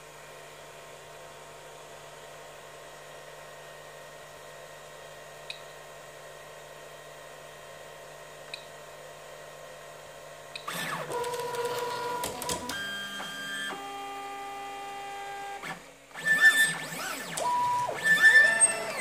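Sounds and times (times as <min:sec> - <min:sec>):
stepper motors whining: 0:15.4 - 0:19.0.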